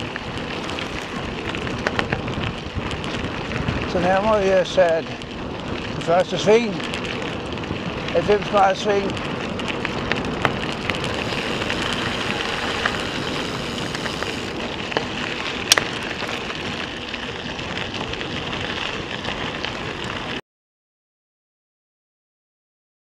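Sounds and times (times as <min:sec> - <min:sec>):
bicycle tyres on gravel: 0:00.0 - 0:20.4
stones hitting the bike: 0:09.3 - 0:18.0.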